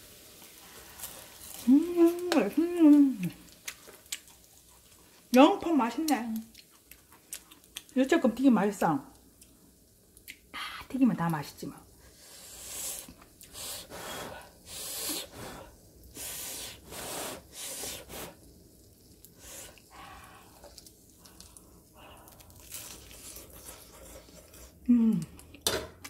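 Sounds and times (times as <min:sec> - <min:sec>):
person chewing crunchy fritters: 0:03.3 - 0:05.4, 0:06.0 - 0:07.9, 0:19.7 - 0:25.7.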